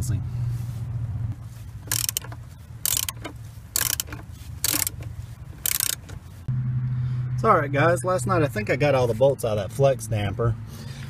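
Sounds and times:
ratchet wrench clicking: 1.8 - 6.2.

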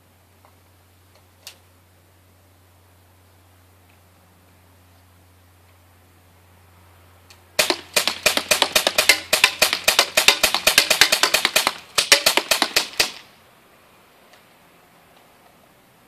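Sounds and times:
air pistol shots: 7.6 - 13.3.

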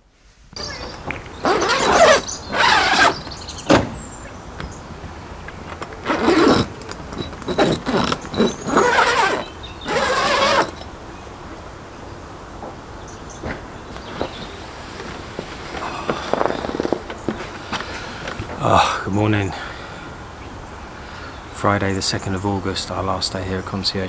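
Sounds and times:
tent door zip rasping open: 1.4 - 3.4, 6.0 - 10.9.

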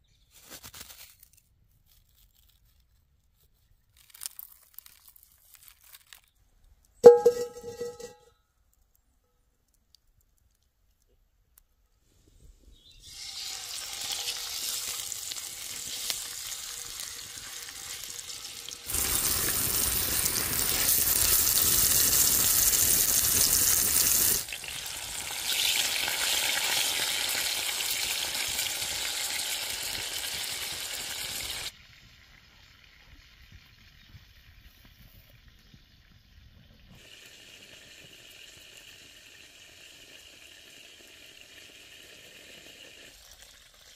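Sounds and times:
chicken sizzling in skillet: 13.0 - 34.2, 36.9 - 43.9.

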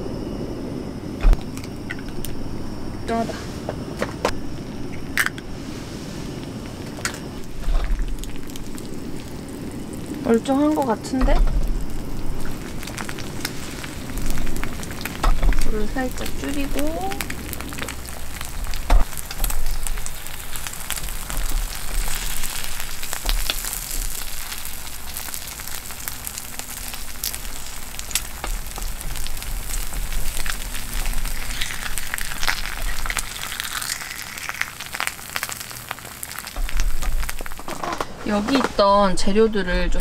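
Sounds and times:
eggs sizzling in a pan: 4.5 - 39.4.

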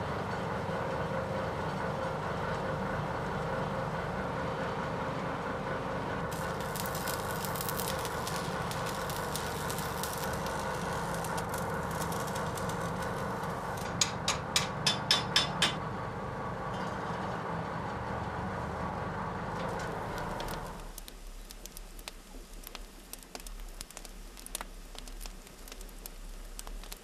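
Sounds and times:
machine hum: 5.6 - 14.8, 17.4 - 27.0
crackling: 6.3 - 14.0, 19.6 - 27.0.

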